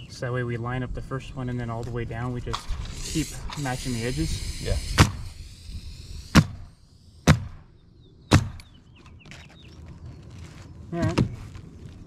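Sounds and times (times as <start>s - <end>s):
nail gun shots: 4.7s - 5.3s, 6.3s - 7.7s, 8.3s - 8.7s.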